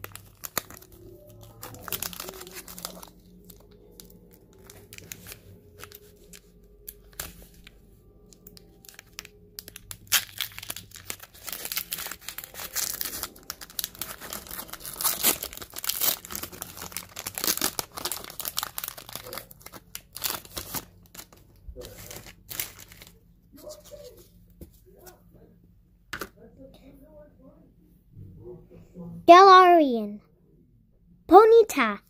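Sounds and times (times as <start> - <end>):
foil wrapper tearing and rustling: 0.0 - 24.0
foil crackles: 0.0 - 24.2.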